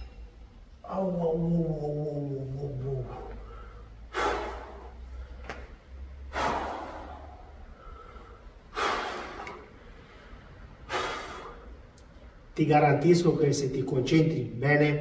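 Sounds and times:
man breathing hard: 3.0s - 11.9s.

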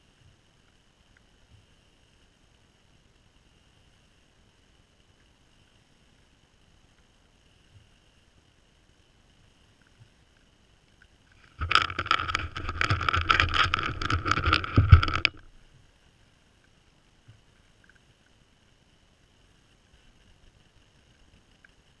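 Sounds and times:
deer nosing camera housing: 11.4s - 15.5s.

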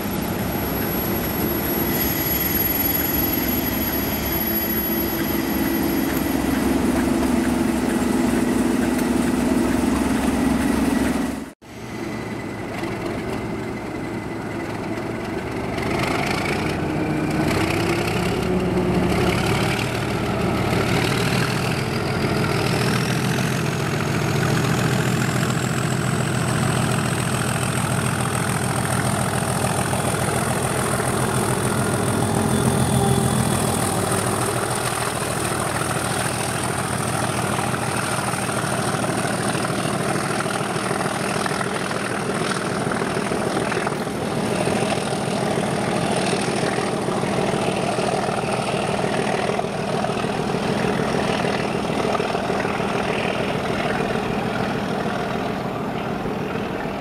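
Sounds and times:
diesel locomotive engine: 0.0s - 57.0s
turbocharger whistle: 0.1s - 7.1s, 28.2s - 36.3s.

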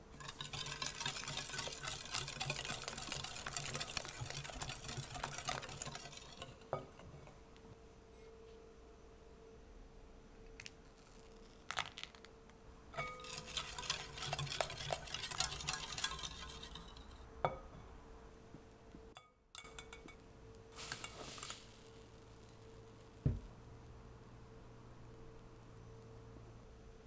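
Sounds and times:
whisk clinking against glass bowl: 0.1s - 7.0s, 13.0s - 17.6s, 19.2s - 20.2s
knock: 23.2s - 23.5s.

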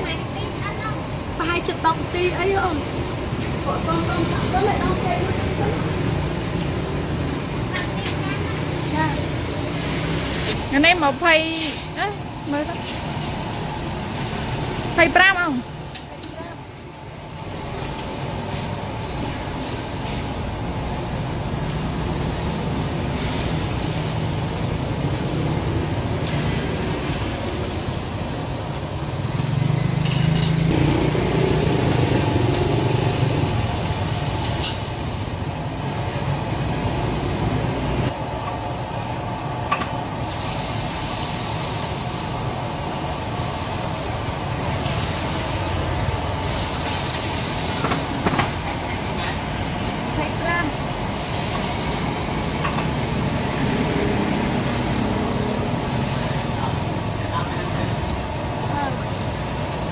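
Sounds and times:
street traffic rumble: 0.0s - 59.9s
oil sizzling in fryer: 40.1s - 55.1s.

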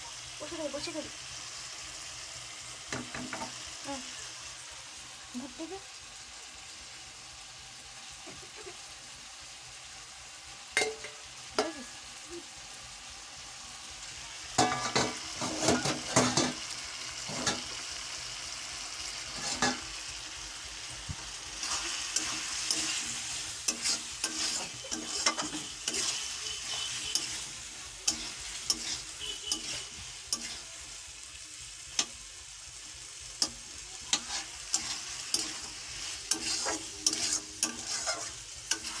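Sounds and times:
chicken sizzling in a pan: 0.0s - 39.0s
metal spatula scraping a pan: 14.6s - 17.8s, 19.3s - 20.0s, 21.6s - 31.0s, 33.4s - 39.0s.

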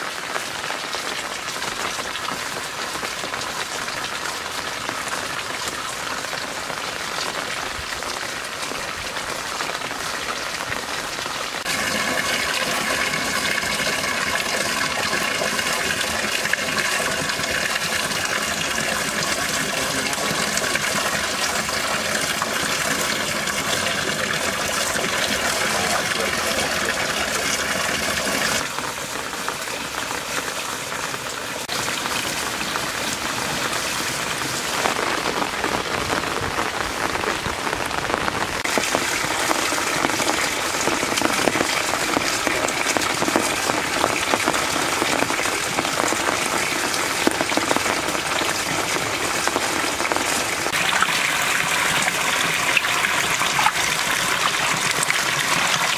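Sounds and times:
water splashing into pond: 0.0s - 55.9s.

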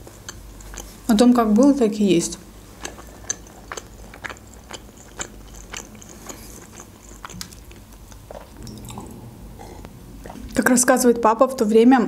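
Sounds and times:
chewing and mouth clicks: 0.0s - 1.3s, 2.7s - 9.1s
sipping and swallowing: 2.8s - 10.6s.

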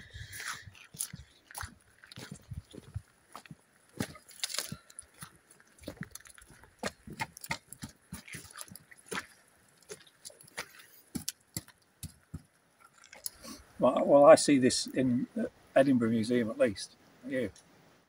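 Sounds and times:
footsteps on muddy stony path: 0.0s - 13.8s.

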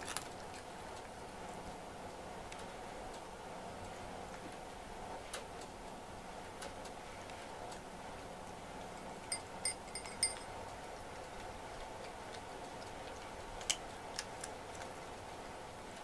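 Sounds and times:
faint steady hum: 0.0s - 16.0s
clinks on ceramic food bowl: 9.3s - 10.5s.

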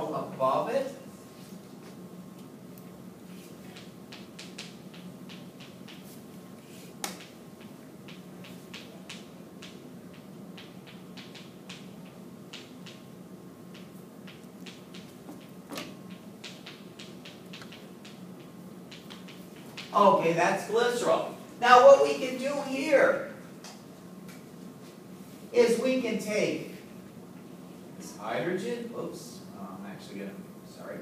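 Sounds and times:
steady low hum: 0.0s - 31.0s
sharp chalk knocks: 3.6s - 6.2s, 7.0s - 13.1s, 13.7s - 20.0s
chalk tapping on chalkboard: 3.7s - 6.2s.

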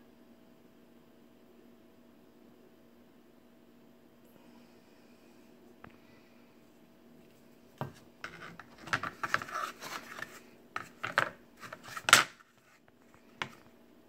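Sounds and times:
knife sheath scraping and clacking: 8.3s - 12.4s.

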